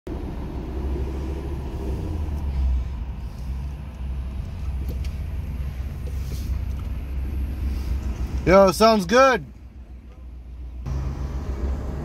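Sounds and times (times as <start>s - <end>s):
deep engine exhaust rumble: 0.1s - 8.5s.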